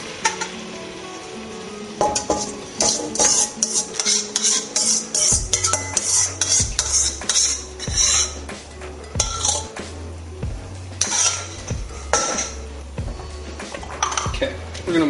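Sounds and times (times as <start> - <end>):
utensil scraping pan of sauce: 0.1 - 14.8
background music bass line: 5.2 - 15.0.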